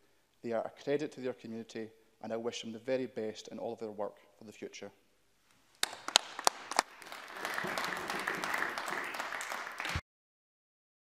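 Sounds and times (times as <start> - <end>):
people applauding: 5.8 - 10.0.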